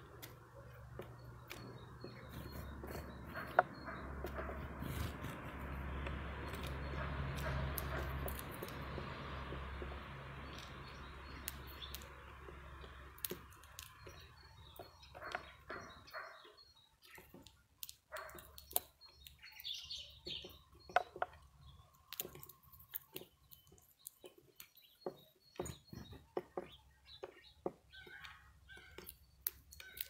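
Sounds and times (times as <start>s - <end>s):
small birds chirping: 0.0s - 30.0s
bird cracking seeds: 10.5s - 14.4s, 22.0s - 24.8s.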